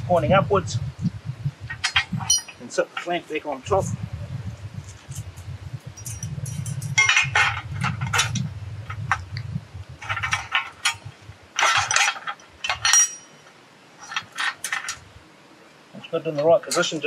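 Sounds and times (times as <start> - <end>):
steel plates clinking and rattling: 1.7 - 3.2, 6.0 - 9.2, 10.0 - 15.0, 16.4 - 17.0.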